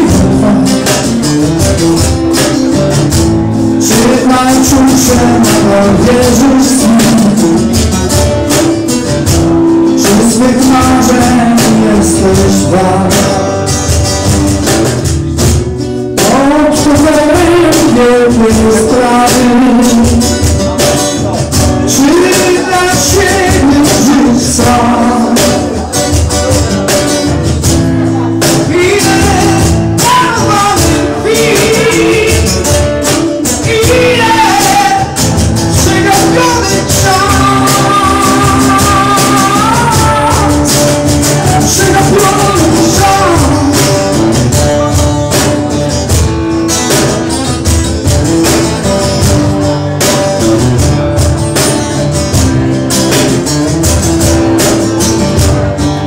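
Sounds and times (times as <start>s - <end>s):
man singing into microphone: 0.0s - 1.6s, 3.5s - 8.0s, 9.3s - 14.0s, 16.2s - 26.9s, 28.0s - 45.6s
acoustic guitars: 0.0s - 56.0s.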